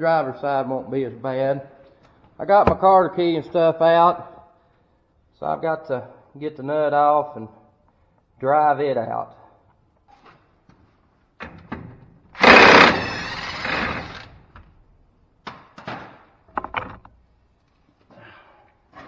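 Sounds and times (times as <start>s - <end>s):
impact wrench hammering: 12.4s - 14.2s.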